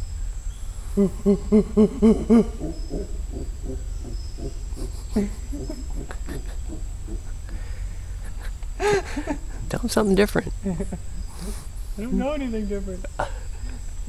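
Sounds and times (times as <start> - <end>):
man imitating monkey hoots: 0.9 - 8.6.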